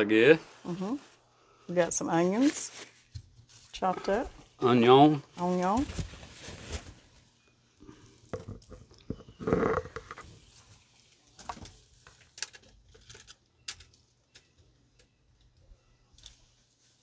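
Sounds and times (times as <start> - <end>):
onions rustling: 1.8 - 7.3.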